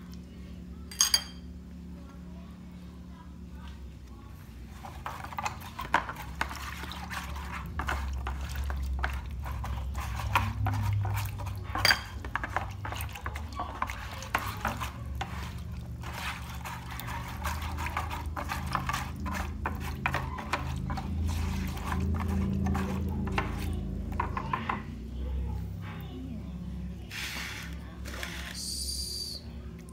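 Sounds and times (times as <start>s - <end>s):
spoon scraping a tray: 4.7s - 24.7s, 27.1s - 28.6s
liquid sloshing: 4.7s - 24.8s.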